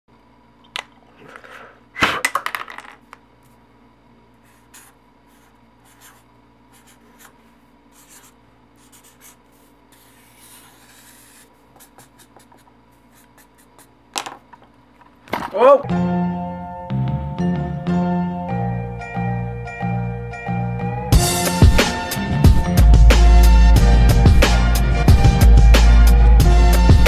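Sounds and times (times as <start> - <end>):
marker scratching on paper: 4.4 - 14.0.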